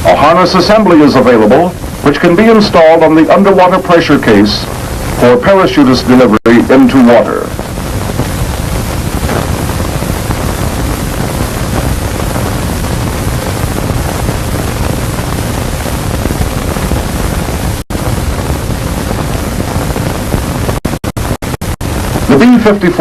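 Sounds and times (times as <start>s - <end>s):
film soundtrack hiss: 0.0s - 23.0s
low rumble: 7.4s - 22.3s.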